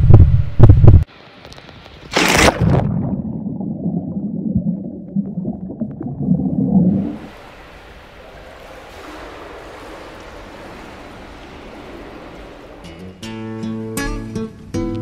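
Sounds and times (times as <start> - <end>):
person splashing into pool: 2.1 - 7.7
underwater gurgling and bubbling: 2.6 - 7.3.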